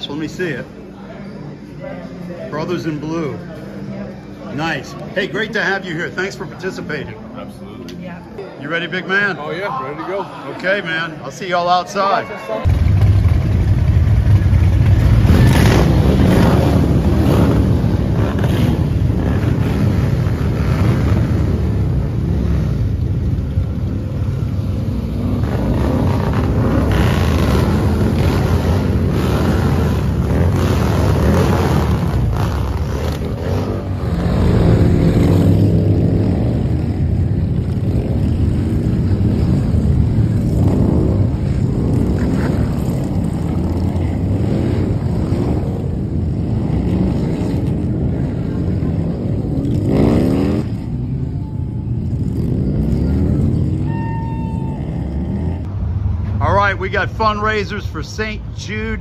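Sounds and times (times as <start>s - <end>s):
motorcycle engines rumbling: 0.0s - 59.0s
motorcycles revving: 12.6s - 59.0s.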